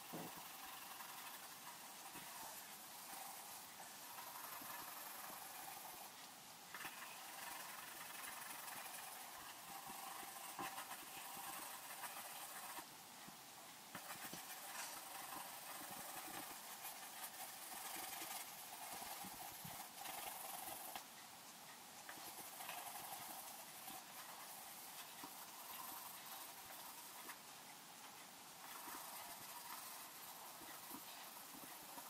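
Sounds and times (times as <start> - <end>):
pencil scratching on paper: 0.0 - 12.9, 13.9 - 21.1, 22.0 - 32.0.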